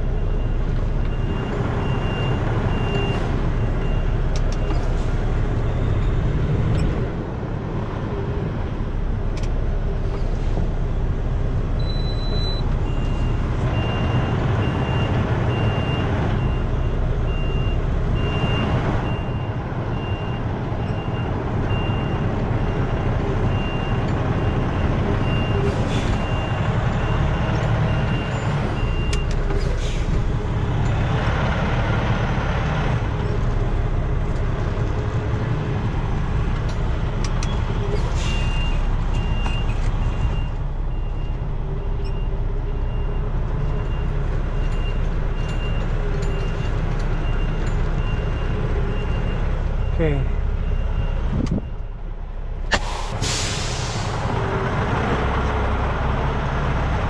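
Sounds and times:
diesel truck engine running: 0:00.0 - 0:57.0
reverse alarm beeping: 0:11.8 - 0:16.6
short air hisses: 0:52.7 - 0:54.3.

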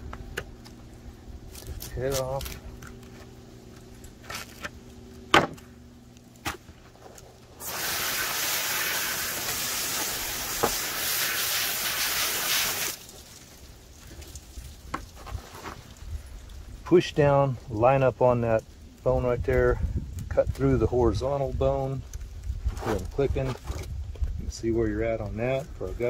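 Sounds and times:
hose spray nozzle hissing: 0:07.6 - 0:13.1.

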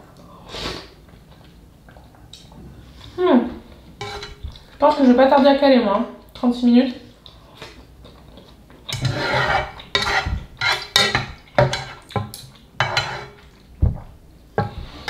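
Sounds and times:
utensils knocking against metal pot: 0:08.9 - 0:13.3.

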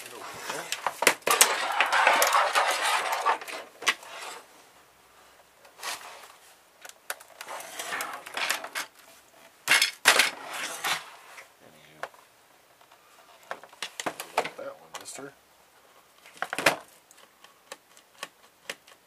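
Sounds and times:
plastic case scraping on table: 0:00.2 - 0:04.5, 0:07.4 - 0:08.9, 0:10.1 - 0:11.5.

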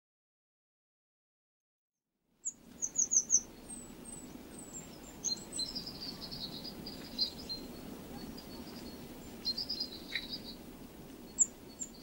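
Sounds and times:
birds chirping and twittering: 0:02.4 - 0:12.0
low background noise: 0:02.4 - 0:12.0.

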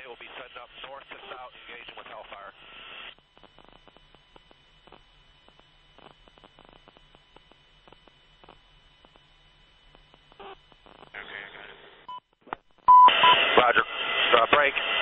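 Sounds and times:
radio static hum: 0:00.0 - 0:15.0
faint clicks and crackles: 0:03.1 - 0:11.3.

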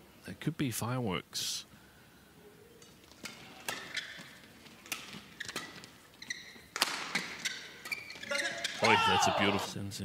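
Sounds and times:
rackets hitting shuttlecock: 0:02.8 - 0:06.0, 0:06.6 - 0:09.0
shoes squeaking on court: 0:02.8 - 0:09.5.

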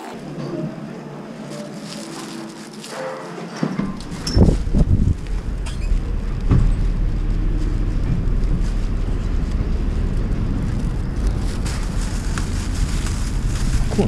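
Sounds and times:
road traffic rumble: 0:04.0 - 0:14.0.

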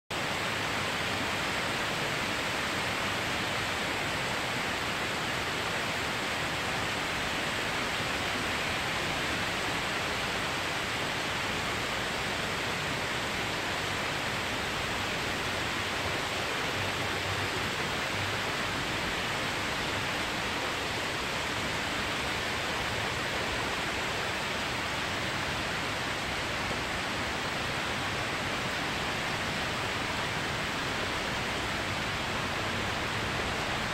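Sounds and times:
heavy rain pouring: 0:00.1 - 0:33.9.

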